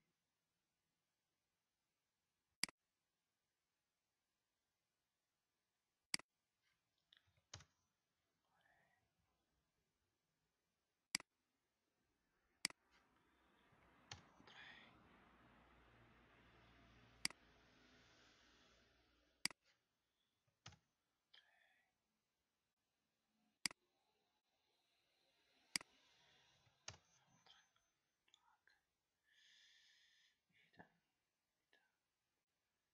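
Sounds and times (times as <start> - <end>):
computer mouse clicking: 14.1 - 14.6, 25.7 - 26.0.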